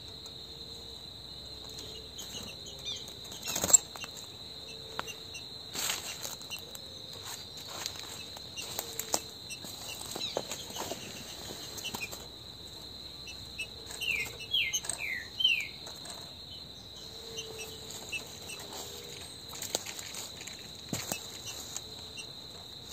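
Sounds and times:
high insect trill: 0.0 - 22.9
light taps and rustles: 19.5 - 21.9.

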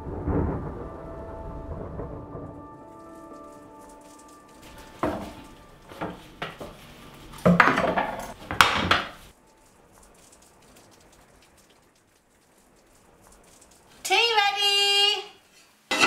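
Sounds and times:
plates and cutlery clattering: 7.4 - 9.2.

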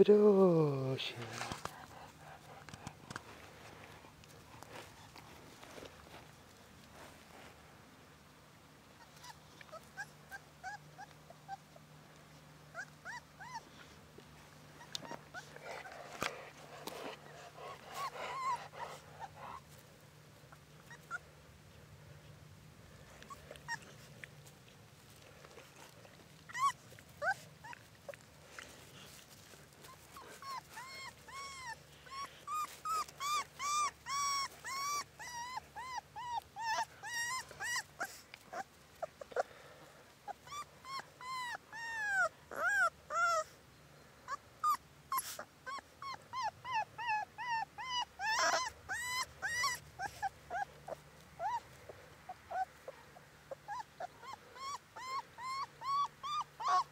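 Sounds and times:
puppy whimpering: 9.0 - 11.9, 12.7 - 14.0, 14.7 - 19.8, 20.5 - 21.3, 23.2 - 28.3, 29.1 - 39.5, 40.3 - 43.6, 44.2 - 56.9.

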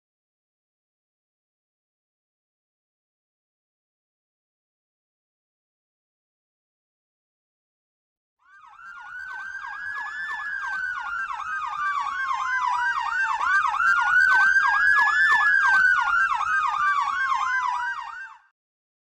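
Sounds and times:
siren wail: 8.5 - 18.5
siren yelp: 8.5 - 18.5.

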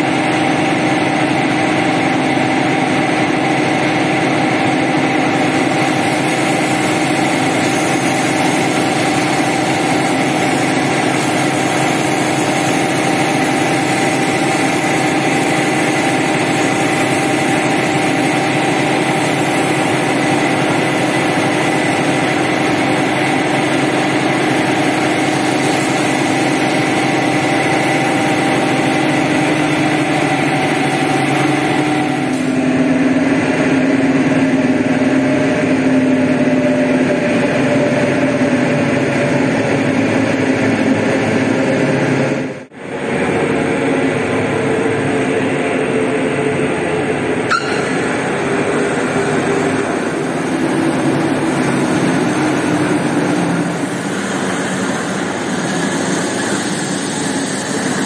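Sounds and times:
pressure washer motor drone: 0.0 - 58.0
water jet hissing on carpet: 5.5 - 32.7, 47.5 - 58.0.

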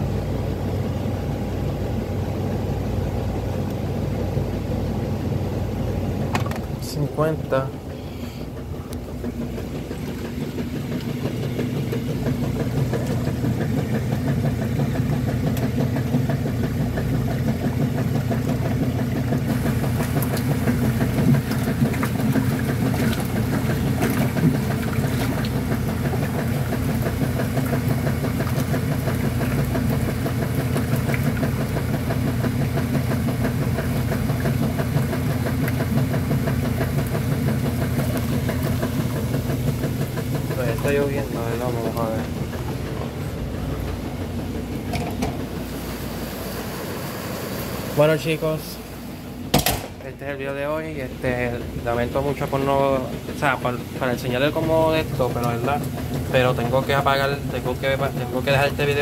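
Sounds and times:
washing machine motor hum: 0.0 - 59.0.

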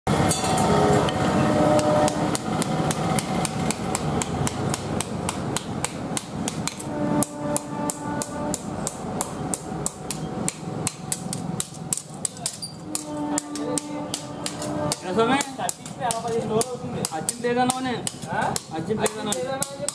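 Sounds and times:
hammer striking metal on anvil: 0.1 - 19.9.

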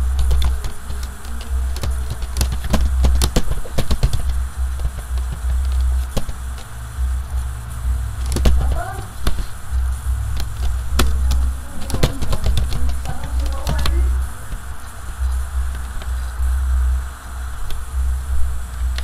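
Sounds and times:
keyboard keys clicking: 0.0 - 6.7, 8.2 - 16.4
loud low hum: 0.0 - 19.0.

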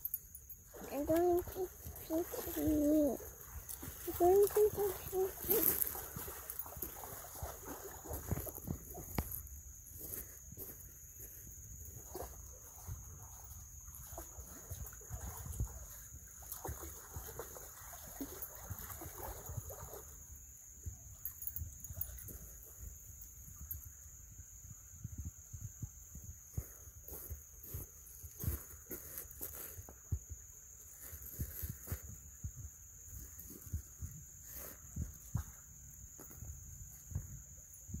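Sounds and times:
high insect drone: 0.0 - 38.0
dog lapping and splashing water: 0.7 - 8.6, 14.0 - 20.1.

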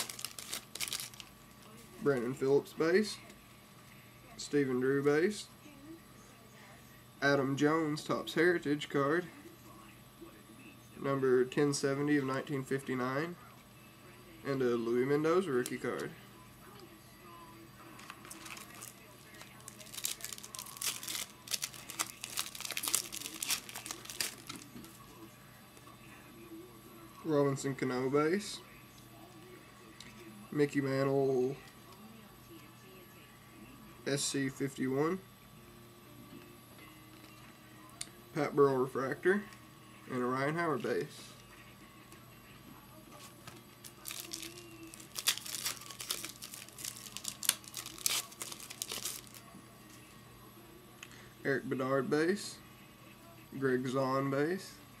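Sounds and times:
foil wrapper crinkling: 0.0 - 1.9, 18.0 - 25.1, 43.5 - 49.5.

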